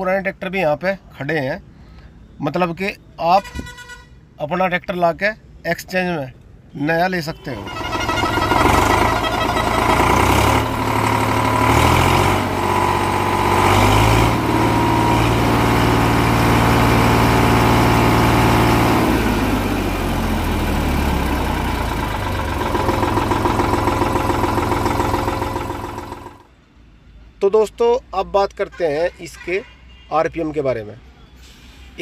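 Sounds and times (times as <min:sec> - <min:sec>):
tractor diesel engine revving: 0:07.4 - 0:26.5.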